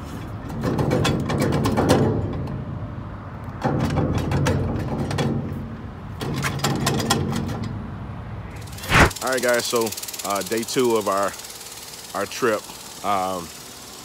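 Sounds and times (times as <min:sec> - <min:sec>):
wheel hub clunking and rattling: 0:00.2 - 0:02.7, 0:03.5 - 0:07.9.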